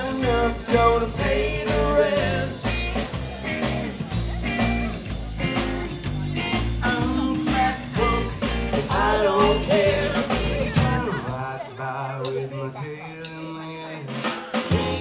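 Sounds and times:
pulsing bass line: 0.0 - 11.6
electric guitar: 0.0 - 12.5
drums: 0.0 - 15.0.

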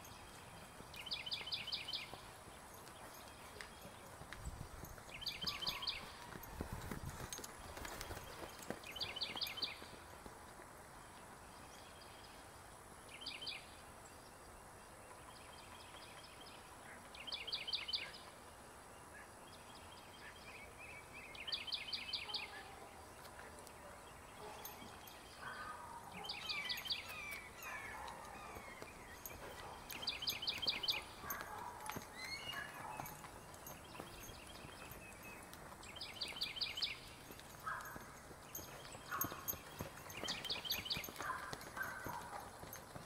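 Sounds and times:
songbird singing: 0.0 - 10.2, 10.9 - 43.0
faint outdoor background noise: 0.0 - 43.0.

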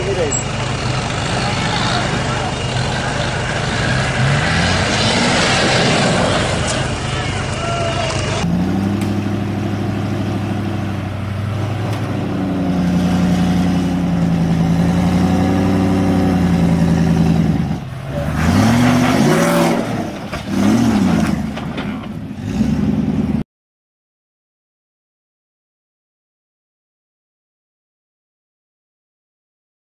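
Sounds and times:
car engine pulling under load: 0.0 - 23.4
engine revving: 0.0 - 23.4.

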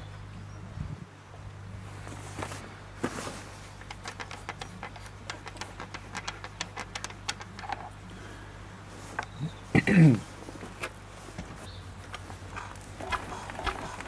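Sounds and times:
steady low hum: 0.0 - 14.0
metal cap clicking unscrewed: 3.8 - 8.0.

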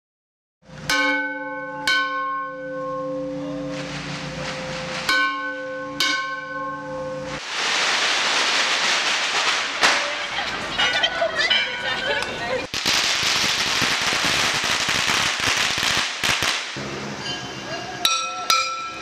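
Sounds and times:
loud steady hiss: 7.1 - 11.1, 12.6 - 19.0
bell ringing: 17.2 - 19.0.

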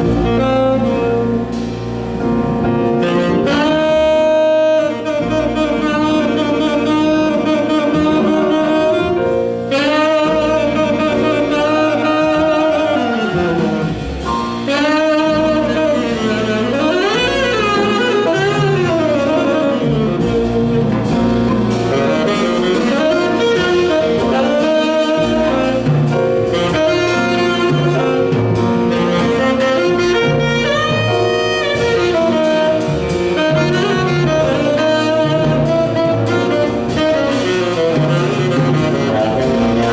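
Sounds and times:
double bass: 0.0 - 39.9
drums: 0.0 - 39.9
tenor saxophone jazz solo: 0.0 - 39.9.

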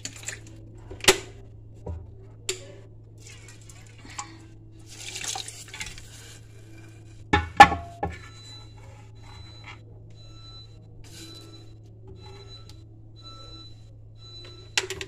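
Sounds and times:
scraping or stirring: 4.8 - 7.3
ladle clanking on metal pot: 7.4 - 8.2.

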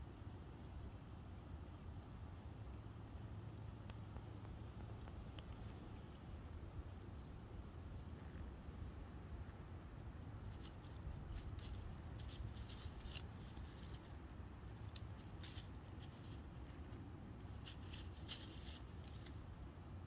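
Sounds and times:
low steady rumble: 0.0 - 20.0
dry leaves rustling: 10.4 - 19.8.

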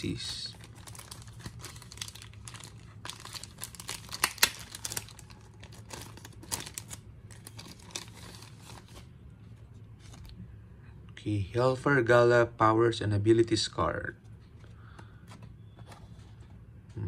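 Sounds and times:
plastic bag crinkling: 0.5 - 9.0.

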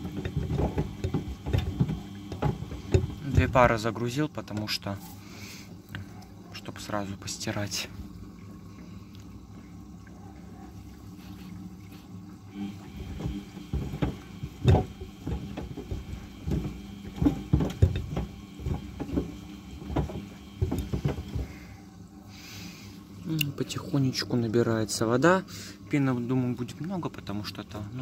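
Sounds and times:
washing machine drum turning: 0.0 - 4.8, 12.5 - 21.8
water running in: 0.0 - 28.0
sneakers thudding against drum: 13.0 - 21.6.

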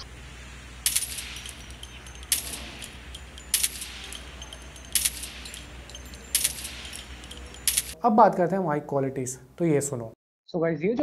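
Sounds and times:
low steady hum: 0.0 - 8.4
metallic clinks: 0.8 - 8.0.

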